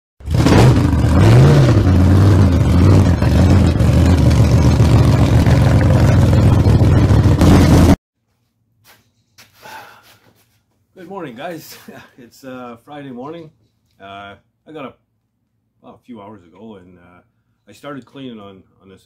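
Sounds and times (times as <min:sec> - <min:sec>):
engine revving: 0:00.2 - 0:08.0.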